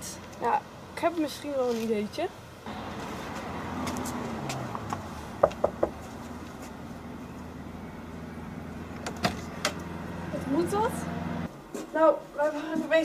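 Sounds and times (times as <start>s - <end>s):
knocks on wooden door: 5.4s - 6.0s.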